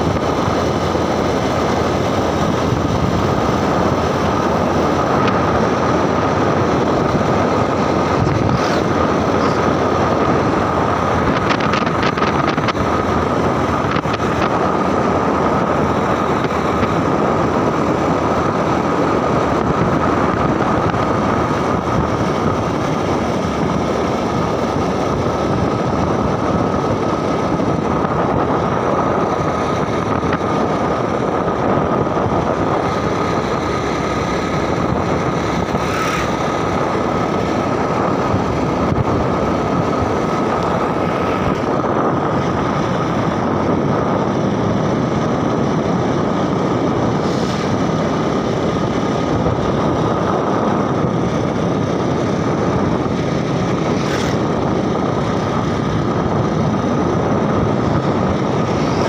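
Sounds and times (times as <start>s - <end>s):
high whine: 0.0s - 59.0s
vehicle engine and road noise: 0.0s - 59.0s
wind on microphone: 0.0s - 59.0s.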